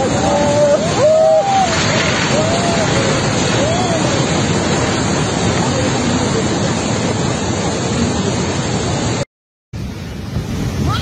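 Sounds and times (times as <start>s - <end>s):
river rushing in flood: 0.0s - 9.2s, 9.8s - 11.0s.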